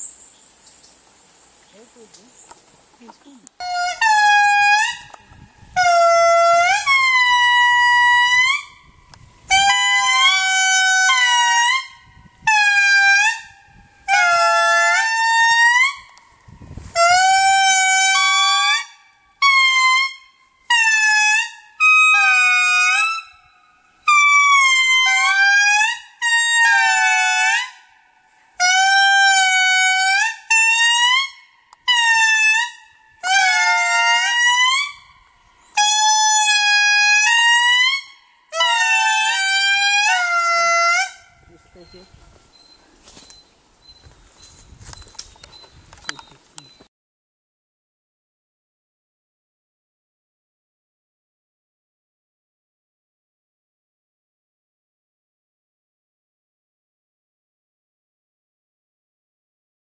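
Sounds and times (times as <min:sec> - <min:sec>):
lemurs wailing in chorus: 0:35.8 - 0:41.2.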